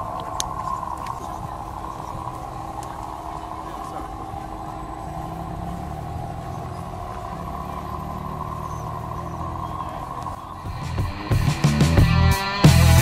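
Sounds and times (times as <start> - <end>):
electric motor whining: 0.0 - 11.6.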